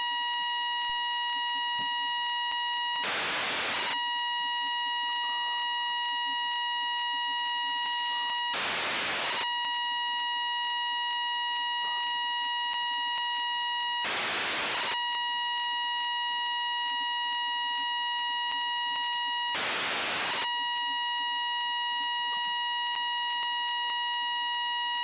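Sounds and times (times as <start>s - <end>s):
buzzy radio tone: 0.0s - 25.0s
burst of radio hiss: 5.1s - 9.4s.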